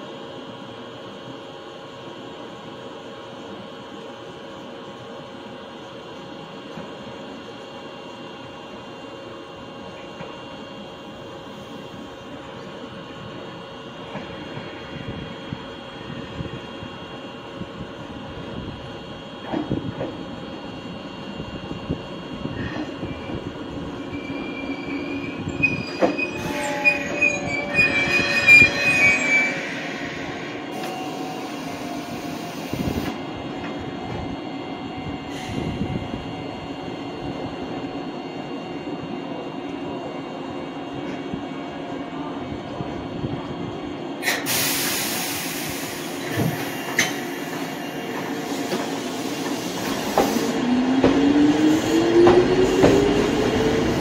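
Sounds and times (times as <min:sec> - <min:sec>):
train rumbling: 0:09.6 - 0:54.0
train wheels squealing: 0:22.6 - 0:33.1
loud hiss of air: 0:44.2 - 0:50.6.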